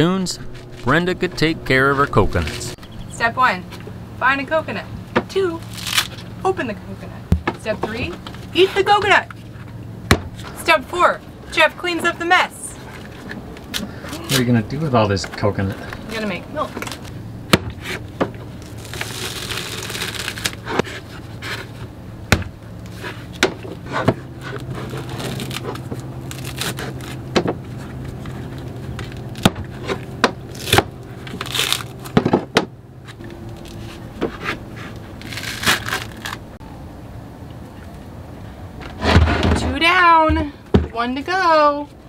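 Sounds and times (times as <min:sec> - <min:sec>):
steady low hum: 0:00.0 - 0:42.0
husk fibres ripping: 0:05.6 - 0:06.4, 0:17.8 - 0:20.8, 0:24.5 - 0:32.2, 0:34.8 - 0:36.6.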